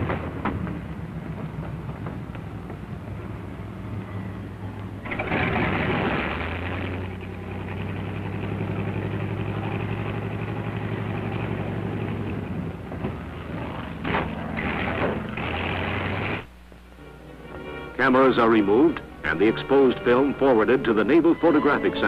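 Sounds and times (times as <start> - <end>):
rush of noise: 0.0 - 16.5
propeller aircraft engine droning: 0.0 - 22.0.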